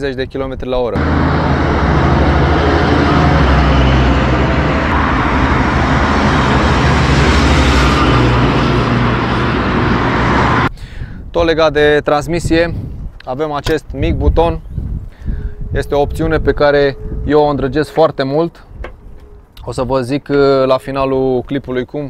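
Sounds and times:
diesel engine driving past: 1.0 - 10.7, 15.5 - 19.2.

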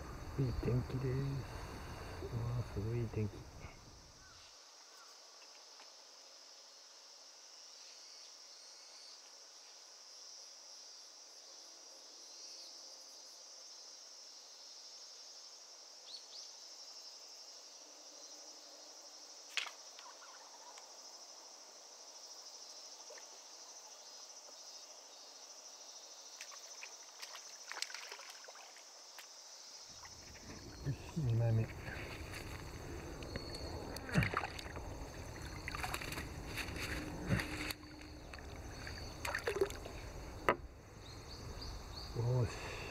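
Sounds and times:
insects droning: 0.0 - 42.9.

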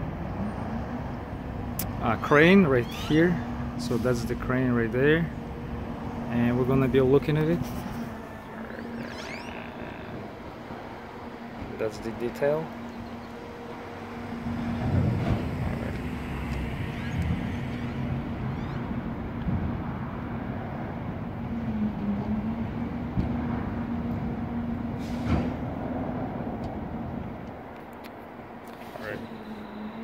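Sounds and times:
heavy vehicle engine humming: 0.0 - 30.0.

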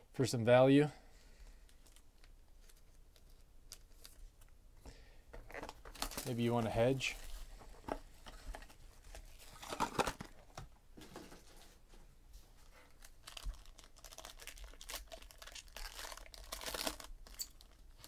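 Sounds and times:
foil wrapper crinkling and tearing: 5.6 - 6.4, 12.9 - 18.0.

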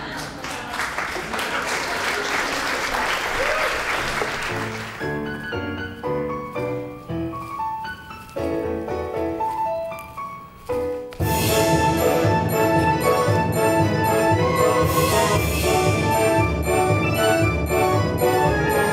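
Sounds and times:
audience applause: 0.0 - 5.3
piano melody: 4.4 - 18.9.

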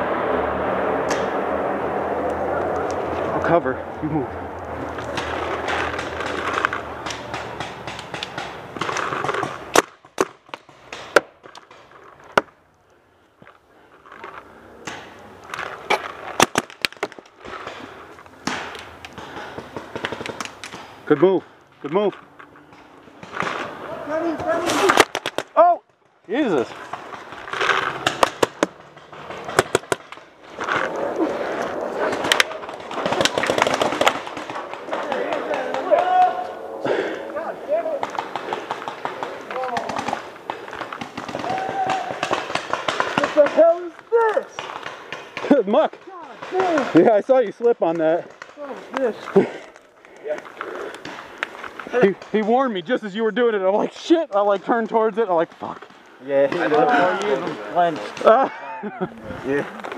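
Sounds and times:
paintball markers firing: 4.9 - 12.5, 14.8 - 21.0, 26.7 - 31.0, 32.0 - 36.2, 37.9 - 47.1.

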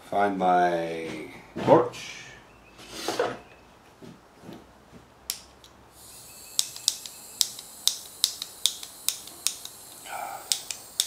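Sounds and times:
gas torch igniter clicking: 5.3 - 11.0
faint hiss of gas: 5.9 - 11.0.

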